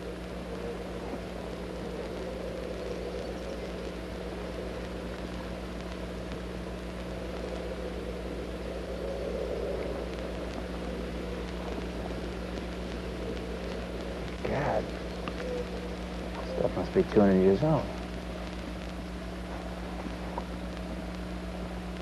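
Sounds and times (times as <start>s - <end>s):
low drone with hiss: 0.0s - 22.0s
low electrical hum: 0.0s - 22.0s.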